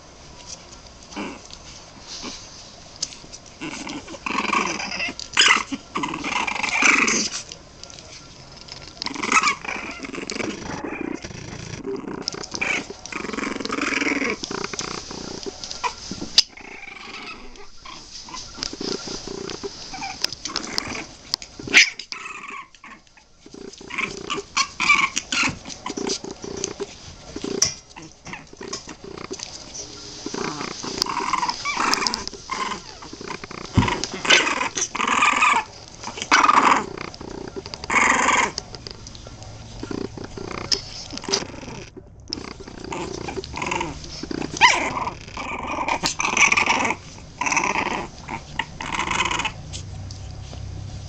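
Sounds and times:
puppies whimpering: 0:03.6 - 0:07.3, 0:09.1 - 0:27.0, 0:27.6 - 0:50.4
scuffling on bedding: 0:14.3 - 0:16.6, 0:17.4 - 0:21.7.

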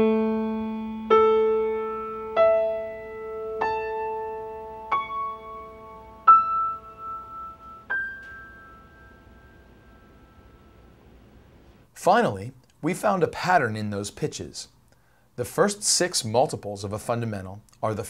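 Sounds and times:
piano notes climbing: 0:00.0 - 0:11.2.

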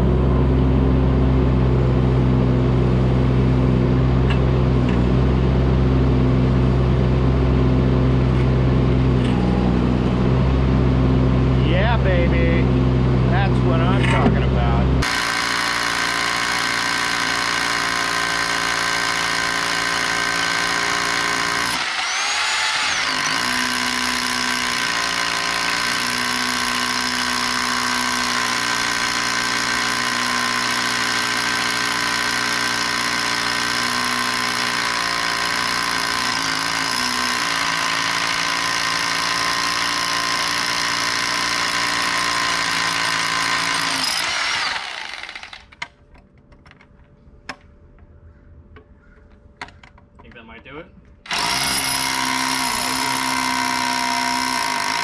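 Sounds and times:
rotary hammer drilling concrete: 0:15.0 - 0:45.8, 0:51.3 - 0:55.0.

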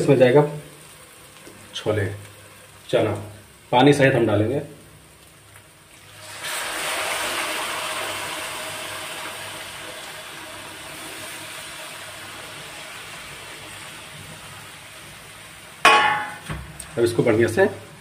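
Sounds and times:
loud sizzle in hot pan: 0:00.0 - 0:18.0
liquid pouring into pan: 0:05.2 - 0:13.8.

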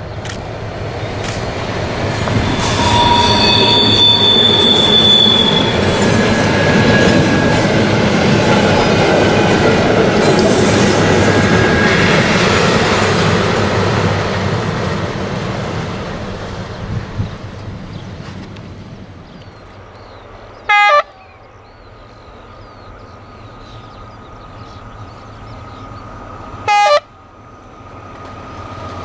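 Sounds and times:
high wheel squeal: 0:02.1 - 0:08.1.

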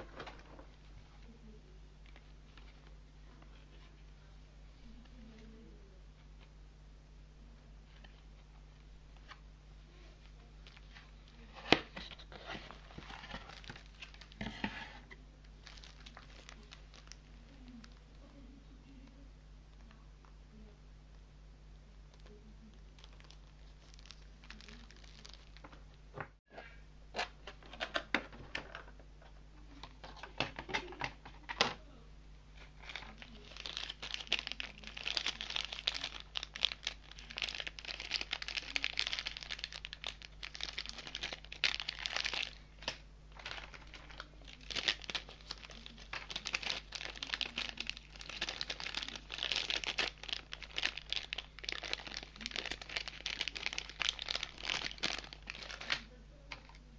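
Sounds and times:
plastic bags crinkling: 0:10.6 - 0:18.4, 0:22.1 - 0:26.0, 0:32.6 - 0:56.8.

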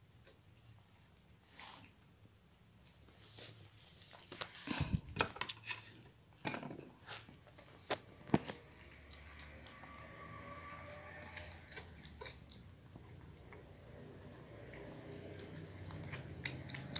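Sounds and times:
cat eating from metal bowl: 0:05.0 - 0:16.9.

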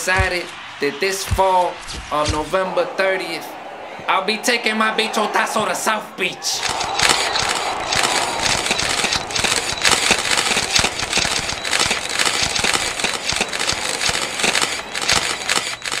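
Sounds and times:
camera shutters clicking: 0:06.6 - 0:16.0.

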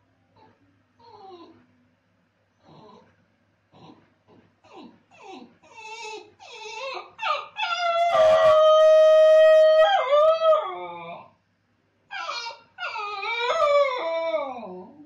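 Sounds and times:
dog whining: 0:00.4 - 0:01.6, 0:04.6 - 0:08.7, 0:09.8 - 0:11.3, 0:12.1 - 0:15.0
dog howling: 0:05.2 - 0:11.3, 0:12.1 - 0:15.0.

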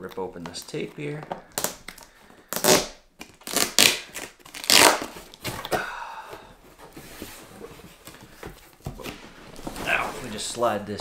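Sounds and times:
tape squeaky peel: 0:01.5 - 0:05.2
packing tape ripping: 0:01.5 - 0:05.6
cardboard rustling: 0:06.6 - 0:11.0.

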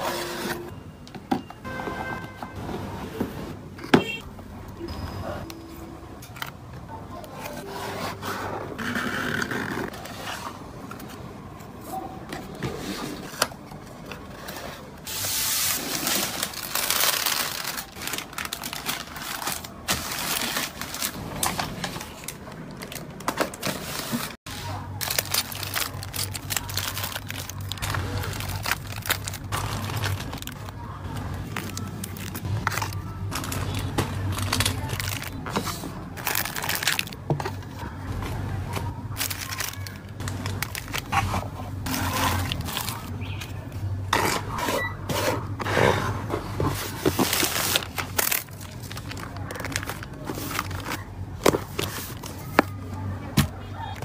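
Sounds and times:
plastic packaging rustling: 0:12.7 - 0:44.6, 0:45.6 - 0:54.0.

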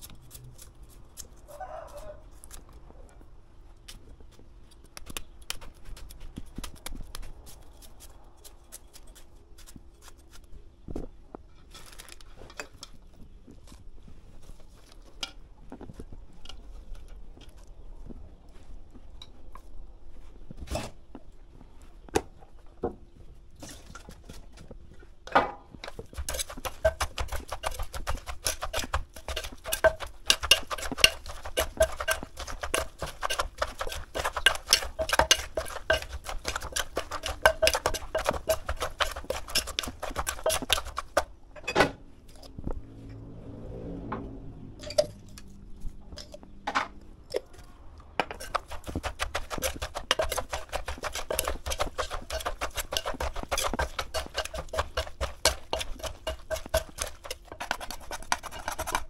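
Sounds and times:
pestle pounding in clay mortar: 0:25.9 - 0:41.3, 0:48.3 - 0:59.0
spoon clicks and knocks: 0:26.2 - 0:41.2.

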